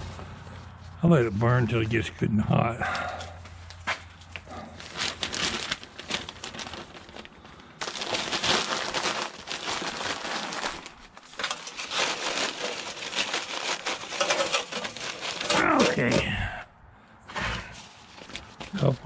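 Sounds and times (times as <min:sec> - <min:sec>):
newspaper crumpling by hand: 0:04.4 - 0:16.2, 0:17.8 - 0:19.0.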